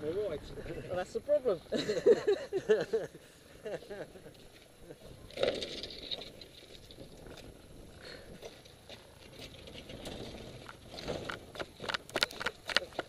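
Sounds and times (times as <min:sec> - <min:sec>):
tyres rolling over gravel: 0:03.8 - 0:13.0.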